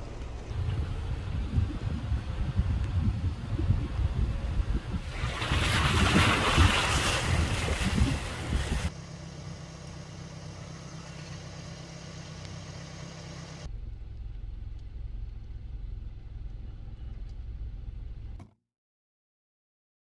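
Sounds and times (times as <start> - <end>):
vehicle engine idling: 0.0 - 5.0, 8.1 - 18.4.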